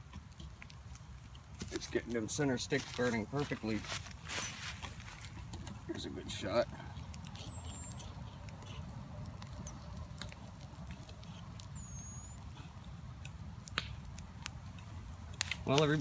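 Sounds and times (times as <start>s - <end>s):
fire crackling and popping: 0.0s - 16.0s
low rumble of stove: 0.0s - 16.0s.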